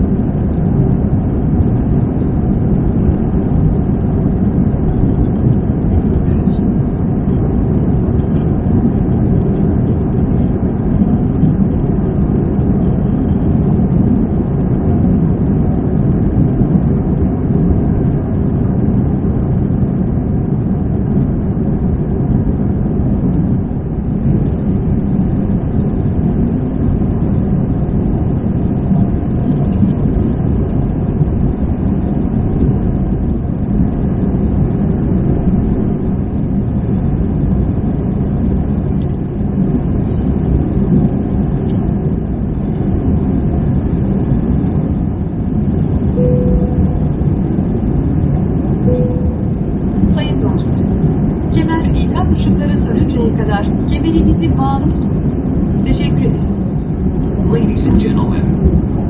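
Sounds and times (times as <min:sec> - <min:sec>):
airliner cabin engine drone: 0:00.0 - 0:59.0.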